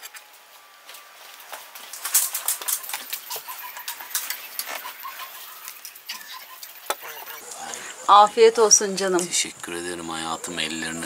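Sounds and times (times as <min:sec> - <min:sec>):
small birds chirping: 0:02.4 - 0:11.0.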